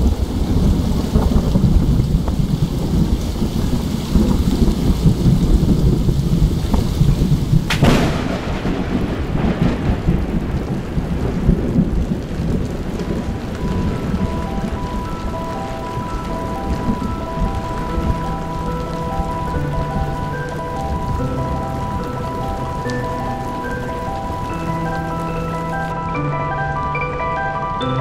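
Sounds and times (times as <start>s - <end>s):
sharp thunderclap: 0.0s - 20.2s
rolling thunder rumble: 0.0s - 27.8s
steady rain: 0.0s - 28.0s.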